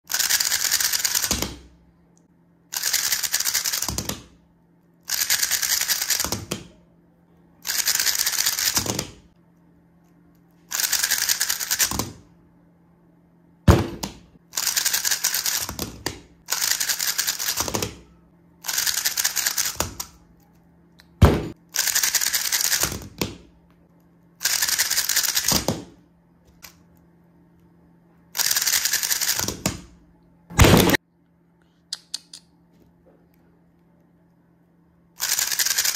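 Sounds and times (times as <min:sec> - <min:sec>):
puzzle cube rapid plastic clicking: 0:00.1 - 0:01.6, 0:02.7 - 0:04.2, 0:05.1 - 0:06.6, 0:07.6 - 0:09.2, 0:10.7 - 0:12.1, 0:14.6 - 0:17.8, 0:18.6 - 0:20.2, 0:21.8 - 0:23.2, 0:24.4 - 0:25.7, 0:28.4 - 0:29.8, 0:35.2 - 0:35.9.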